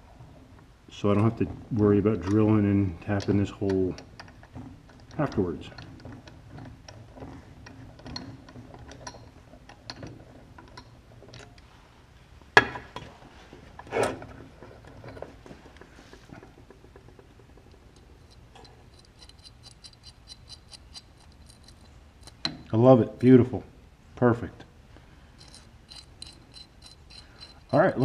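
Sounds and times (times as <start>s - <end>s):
ratcheting tap wrench clicking: 16.7s - 22.7s, 25.4s - 28.0s.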